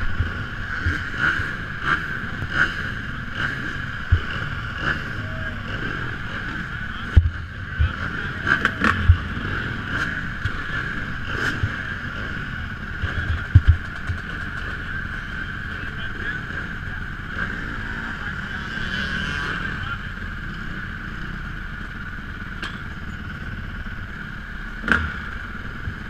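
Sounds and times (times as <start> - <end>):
motocross bikes idling: 0.0 - 26.0.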